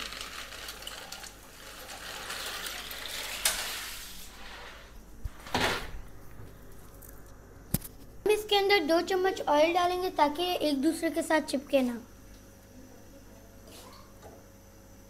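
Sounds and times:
pasta clattering: 0.0s - 6.0s.

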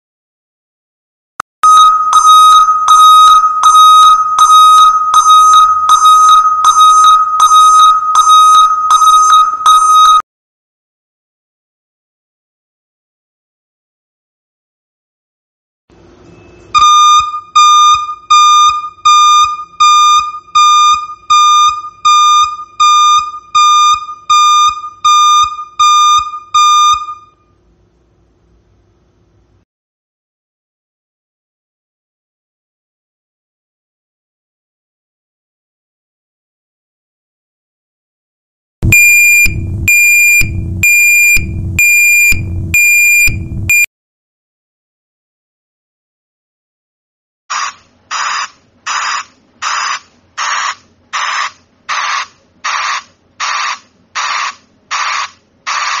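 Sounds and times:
forklift reverse alarm beeping: 1.6s - 10.2s, 16.4s - 27.5s, 38.8s - 43.9s.

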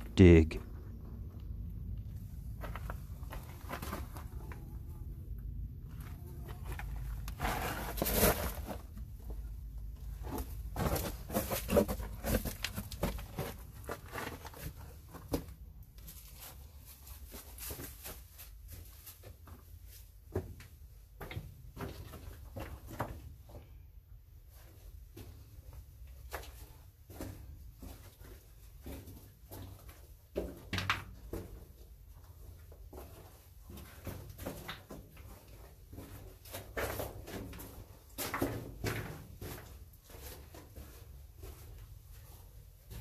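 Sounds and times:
low rumble: 0.6s - 7.3s.

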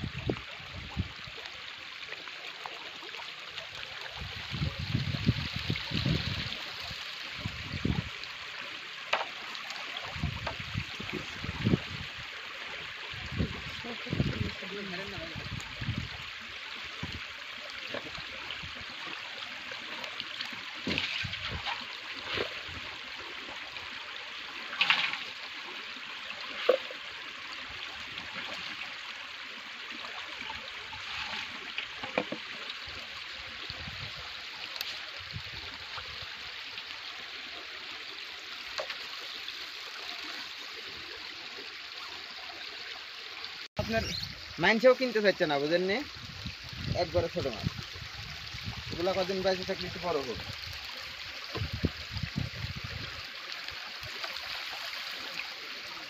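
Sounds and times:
running water trickling: 0.0s - 56.0s
splashes and knocks: 20.4s - 22.8s, 24.7s - 25.5s, 26.5s - 27.1s, 30.5s - 32.6s.

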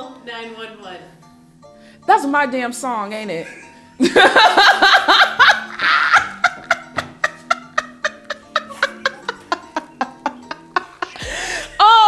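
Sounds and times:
quiet background music: 0.0s - 12.0s
woman laughing hard: 3.4s - 11.9s.

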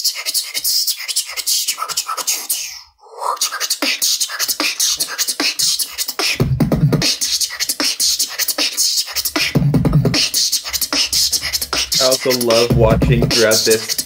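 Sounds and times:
person beatboxing: 0.0s - 14.0s
deep bass: 9.2s - 14.0s.

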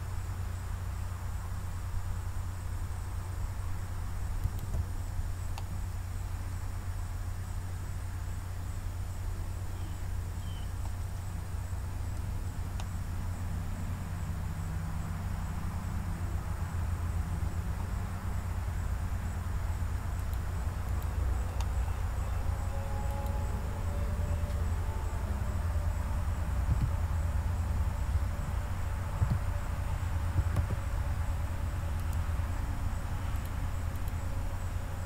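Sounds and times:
low background hum: 0.0s - 35.0s
faint clicks: 4.4s - 4.9s, 12.1s - 13.0s, 20.2s - 21.8s, 32.0s - 32.3s, 33.3s - 34.2s.

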